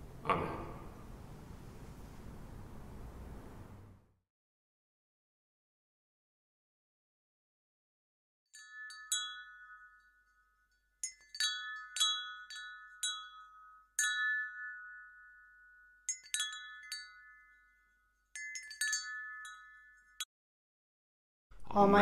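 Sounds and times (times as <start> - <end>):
metal chimes ringing: 8.6 - 20.3.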